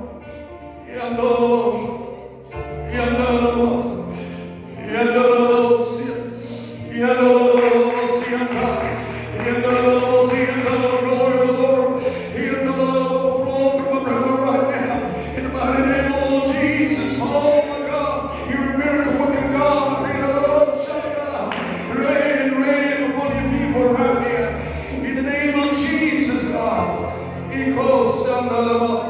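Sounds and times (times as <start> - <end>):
low bass accompaniment: 0.0 - 29.0
choir and congregation singing: 0.8 - 28.6.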